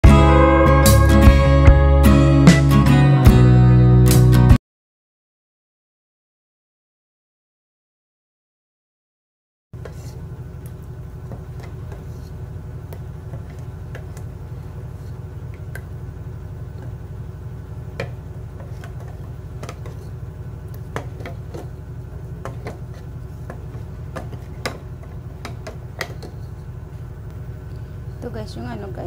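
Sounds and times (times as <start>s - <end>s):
steady low hum: 9.8s - 29.0s.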